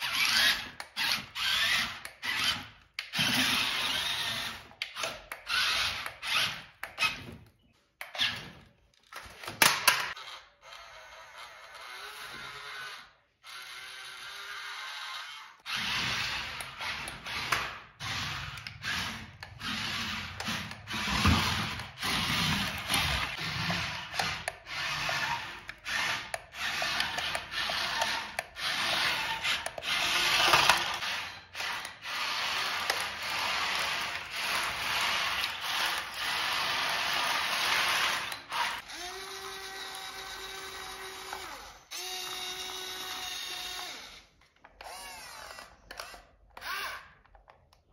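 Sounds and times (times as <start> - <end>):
scraping and grinding: 15.7 - 38.9.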